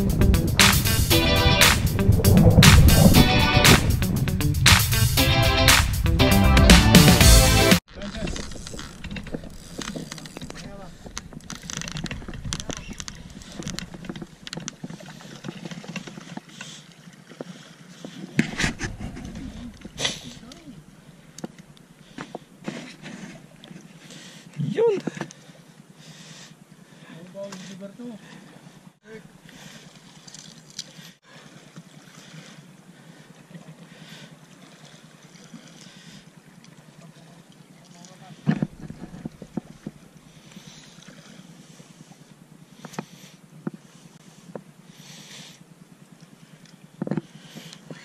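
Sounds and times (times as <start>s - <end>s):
wind noise on microphone: 0.0s - 6.0s
fishing reel being cranked: 8.0s - 14.7s
clicks of rod and reel handling: 8.0s - 16.7s, 25.0s - 25.4s, 37.8s - 40.7s, 42.8s - 43.8s, 46.6s - 48.0s.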